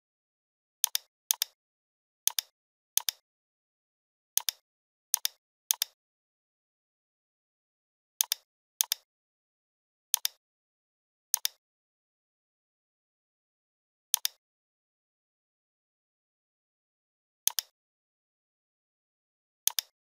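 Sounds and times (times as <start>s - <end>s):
computer mouse clicking: 0.8s - 1.6s, 2.3s - 3.2s, 4.4s - 4.6s, 5.2s - 6.0s, 8.2s - 9.1s, 10.2s - 10.4s, 11.4s - 11.6s, 14.2s - 14.4s, 17.5s - 17.7s, 19.7s - 20.0s.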